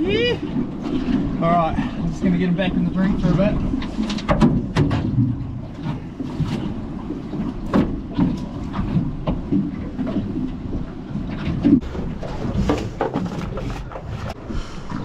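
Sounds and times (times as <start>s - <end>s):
choppy water: 0.0s - 15.0s
wind: 0.0s - 15.0s
sharp knocks on boat: 3.8s - 10.4s, 11.2s - 14.4s.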